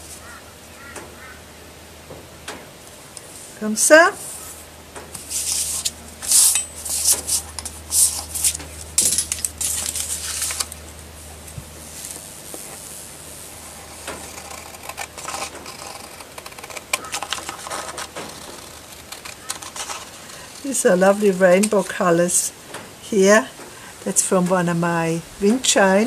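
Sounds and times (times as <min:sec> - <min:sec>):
paper rustling: 0:05.2 - 0:13.0, 0:13.6 - 0:21.7
scissors cutting paper: 0:13.6 - 0:20.4.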